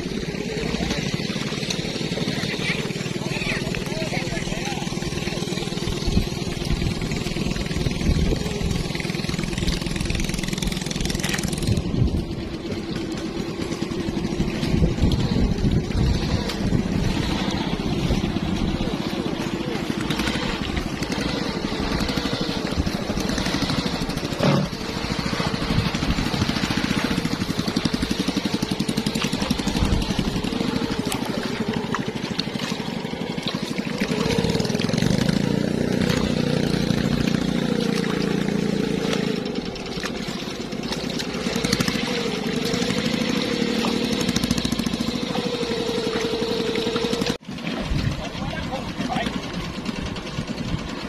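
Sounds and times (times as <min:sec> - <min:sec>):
engine running steadily: 0:00.0 - 0:51.0.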